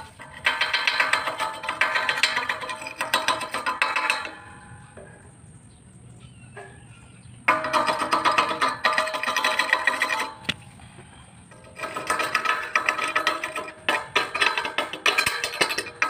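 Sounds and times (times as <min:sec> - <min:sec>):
chipping hammer tapping metal pipe: 0:00.0 - 0:05.0, 0:07.5 - 0:10.6, 0:11.5 - 0:16.0.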